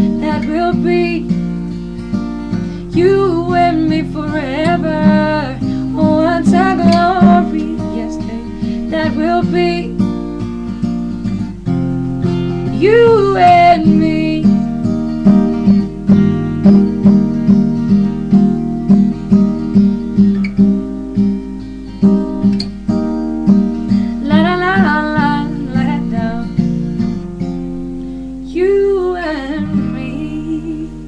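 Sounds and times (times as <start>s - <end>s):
woman singing wordless phrases: 0.0s - 1.4s, 2.9s - 10.0s, 12.7s - 14.6s, 24.2s - 26.6s, 28.4s - 31.0s
acoustic guitar strumming: 0.0s - 31.0s.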